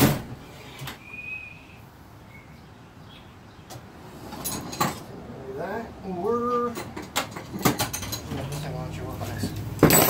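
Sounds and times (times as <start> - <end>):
hand tools clicking and knocking: 6.6 - 8.8.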